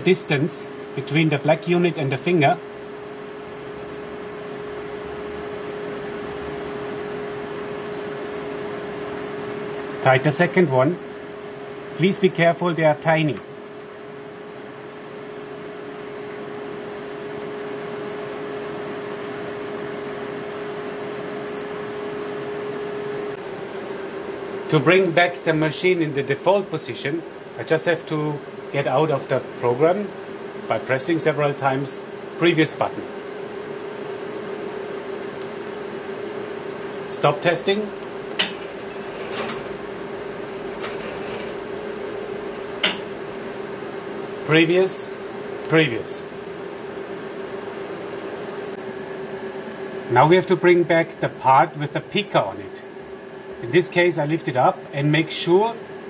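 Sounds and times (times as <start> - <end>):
faint high whine: 0.0 - 56.0
mechanical hum: 0.0 - 56.0.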